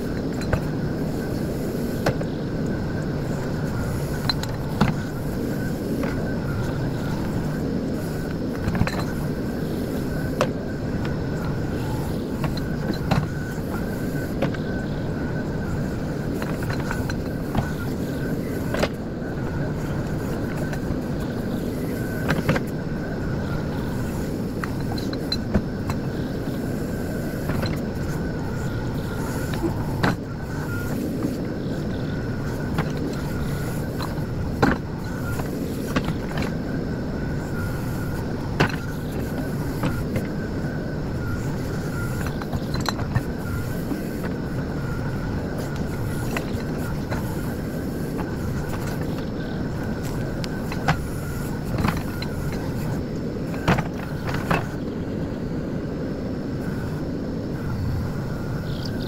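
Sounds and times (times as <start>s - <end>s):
diesel engine running under load: 0.0s - 55.2s
thin steady whine: 0.0s - 59.0s.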